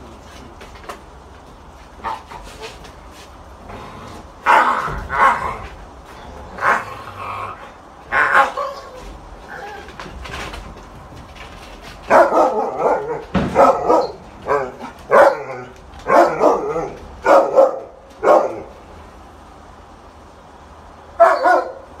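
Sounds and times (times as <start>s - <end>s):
dog barking: 4.4s - 5.6s, 12.1s - 18.7s, 21.2s - 22.0s.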